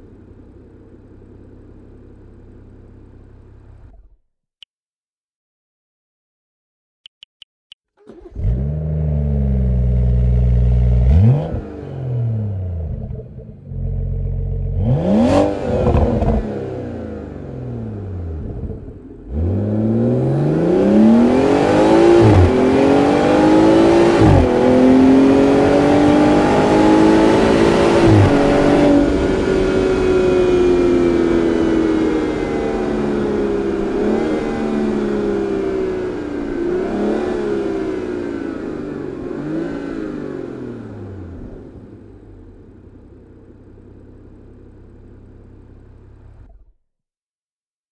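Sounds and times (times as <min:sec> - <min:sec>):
car engine revving and accelerating: 0:08.1 - 0:42.8.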